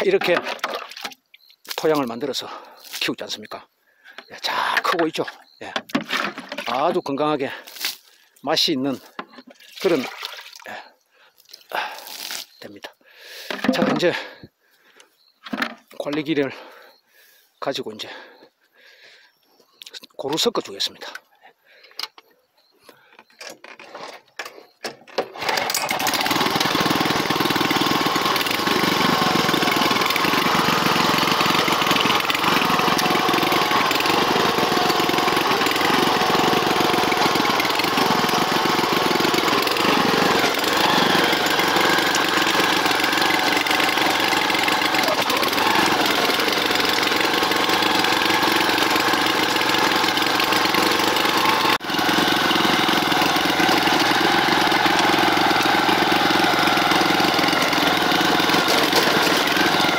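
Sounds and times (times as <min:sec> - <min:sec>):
tines churning soil: 0:00.0 - 0:03.3, 0:06.0 - 0:08.2, 0:08.9 - 0:10.8, 0:11.5 - 0:12.7, 0:25.2 - 0:59.9
tiller engine running: 0:04.2 - 0:07.1, 0:25.2 - 0:59.9.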